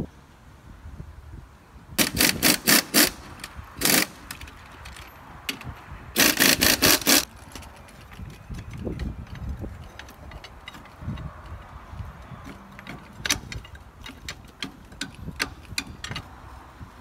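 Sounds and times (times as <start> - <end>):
pneumatic impact wrench bursts: 2.0 - 4.4, 6.2 - 7.3.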